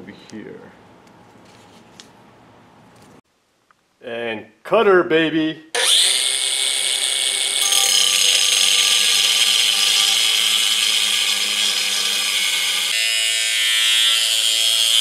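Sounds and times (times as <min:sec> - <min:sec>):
angle grinder cutting steel: 0:05.8 - 0:15.0.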